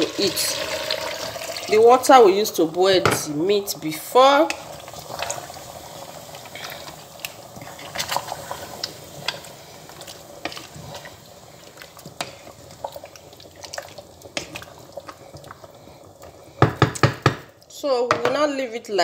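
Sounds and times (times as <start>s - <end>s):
soup sloshing in pot: 4.4s - 17.7s
spoon knocking against pot: 16.6s - 17.5s.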